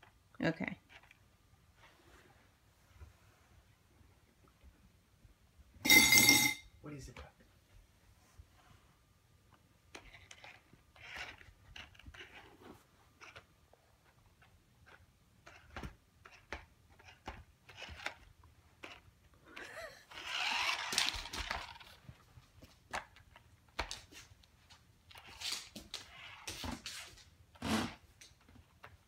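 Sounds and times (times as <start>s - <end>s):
toy car motor whirring: 10.0s - 12.4s, 18.8s - 19.0s, 19.7s - 22.0s.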